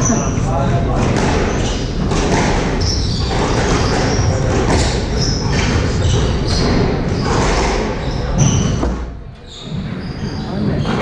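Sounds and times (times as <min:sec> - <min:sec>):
squash ball hitting walls: 0:00.9 - 0:09.2
shoes squeaking on wooden floor: 0:01.0 - 0:11.0.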